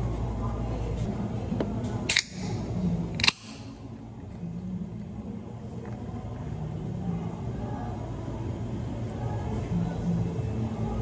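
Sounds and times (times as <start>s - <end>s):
can pull tab cracking: 2.1s - 2.5s, 3.2s - 3.7s.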